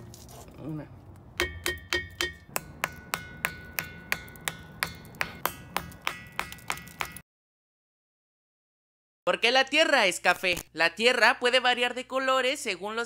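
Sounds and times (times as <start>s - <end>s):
ringing rocks struck with stone: 1.4s - 7.2s.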